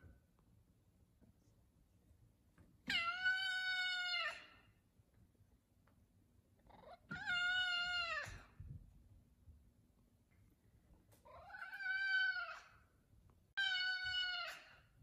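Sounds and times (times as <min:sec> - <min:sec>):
cat meowing: 0:02.8 - 0:04.6, 0:06.8 - 0:08.5, 0:11.3 - 0:12.7, 0:13.6 - 0:14.8.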